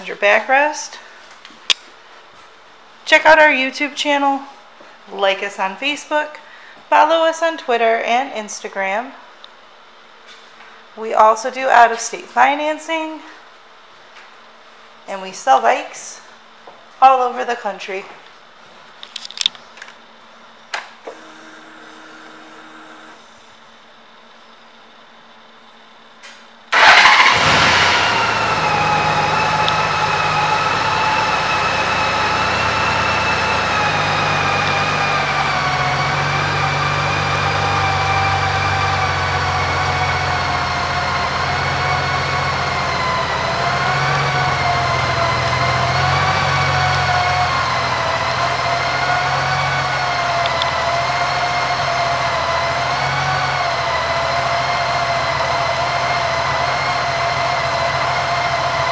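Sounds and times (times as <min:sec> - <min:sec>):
motorcycle engine starting and idling: 0:26.7 - 0:58.9.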